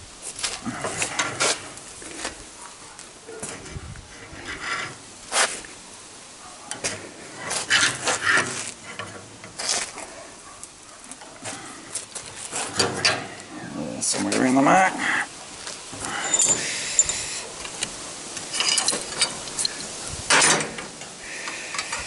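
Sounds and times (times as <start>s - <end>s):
metal scraping and clinking: 16.0s - 21.1s.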